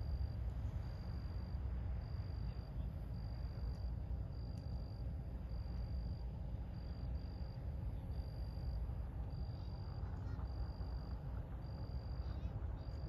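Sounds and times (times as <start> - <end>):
cricket trilling: 0.0 - 13.0
low steady rumble: 0.0 - 13.0.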